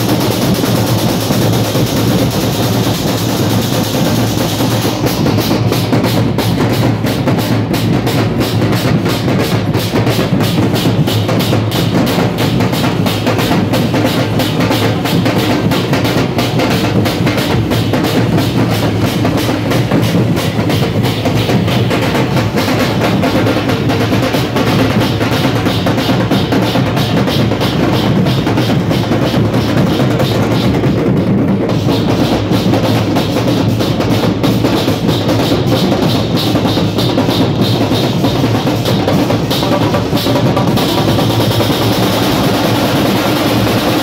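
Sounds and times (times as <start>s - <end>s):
dhol drums beating: 0.0s - 44.0s.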